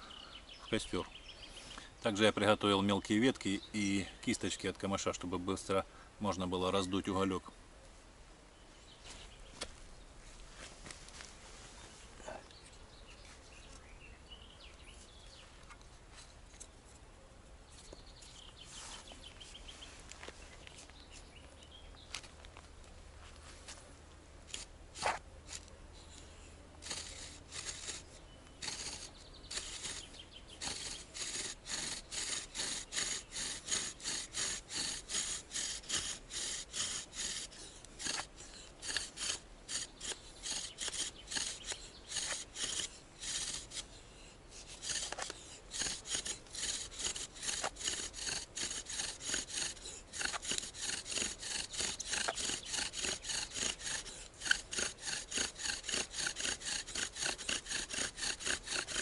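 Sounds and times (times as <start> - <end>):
bow drill spindle rubbing wood: 24.5 - 25.7, 26.8 - 59.0.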